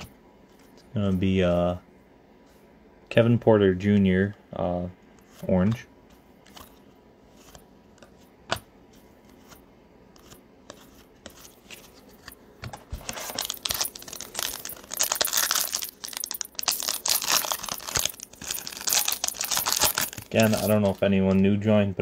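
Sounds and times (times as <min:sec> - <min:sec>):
foil pack crinkling and tearing: 0:13.0 - 0:21.0.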